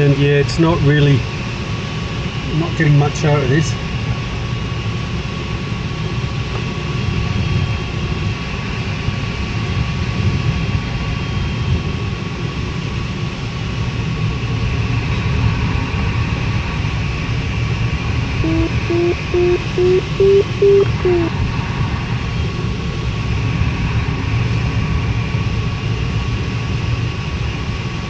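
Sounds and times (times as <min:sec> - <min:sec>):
faint high tone: 0:18.4 - 0:21.3.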